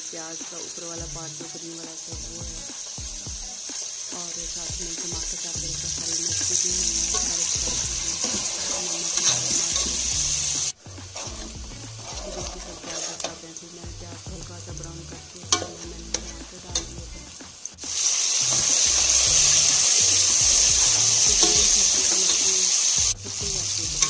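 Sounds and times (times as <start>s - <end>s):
onions sizzling in oil: 0.0s - 24.0s
spoon stirring in pot: 6.6s - 13.5s, 15.3s - 17.1s, 18.5s - 22.7s.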